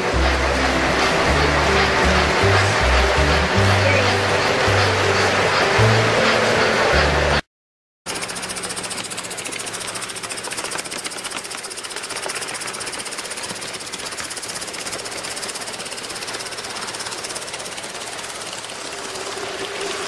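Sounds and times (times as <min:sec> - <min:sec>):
low hum: 0:00.0 - 0:07.4, 0:08.1 - 0:20.0
model steam locomotive clattering: 0:00.0 - 0:07.4, 0:08.1 - 0:20.0.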